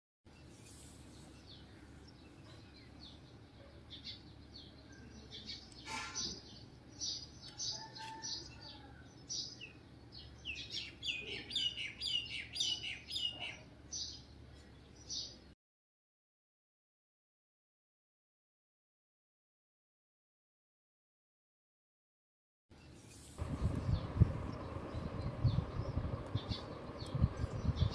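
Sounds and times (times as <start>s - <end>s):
small birds chirping: 0.3s - 15.5s, 22.8s - 27.9s
faint steady hum: 23.2s - 27.9s.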